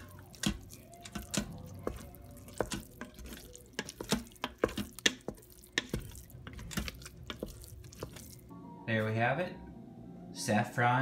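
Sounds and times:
wooden spoon stirring in metal pot: 0:00.0 - 0:08.5.

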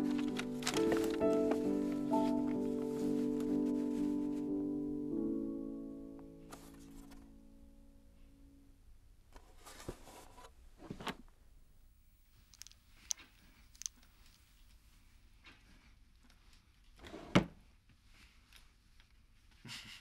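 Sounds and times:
piano chord: 0:00.0 - 0:09.0.

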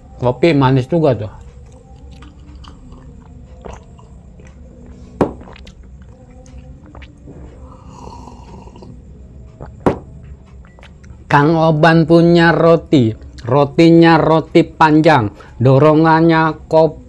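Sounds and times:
low steady hum: 0:00.0 - 0:17.0
slurping and swallowing: 0:02.0 - 0:09.0.

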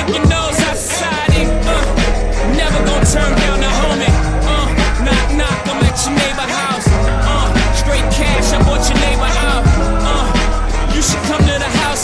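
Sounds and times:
hip hop beat with heavy bass: 0:00.0 - 0:12.0.

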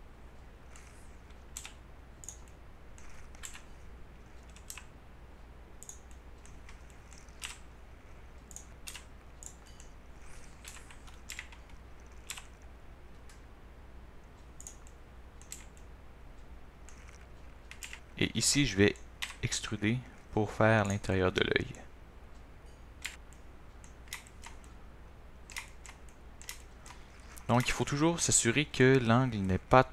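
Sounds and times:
faint low hum: 0:00.0 - 0:29.9
keyboard and mouse clicking: 0:00.7 - 0:04.9, 0:05.8 - 0:13.4, 0:14.2 - 0:15.9, 0:16.8 - 0:18.2, 0:23.0 - 0:24.8, 0:25.4 - 0:28.0.

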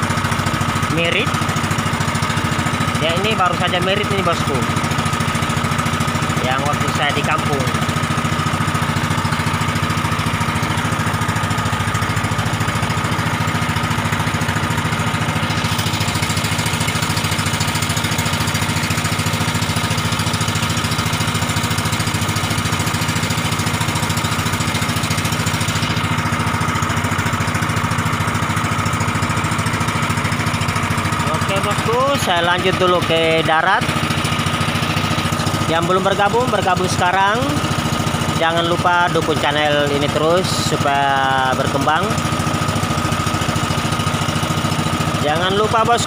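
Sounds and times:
small boat engine humming: 0:00.0 - 0:46.0.

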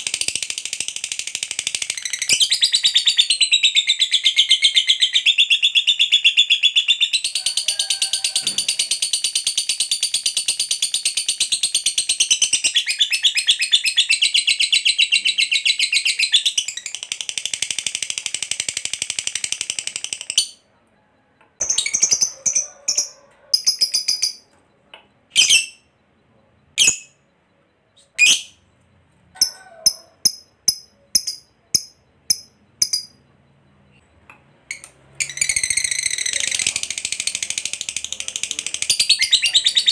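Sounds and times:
lovebird chattering trill: 0:21.6 - 0:24.5, 0:29.4 - 0:33.4, 0:34.7 - 0:39.9.

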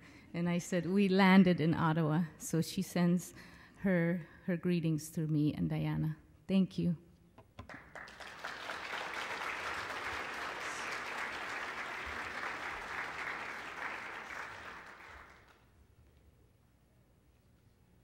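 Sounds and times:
audience applauding: 0:07.7 - 0:15.6.

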